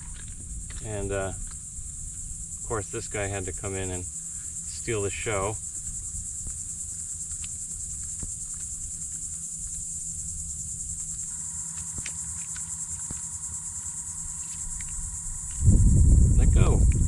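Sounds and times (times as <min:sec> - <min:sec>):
high-pitched insect buzzing: 0:00.0 - 0:17.0
low rumble: 0:15.0 - 0:17.0.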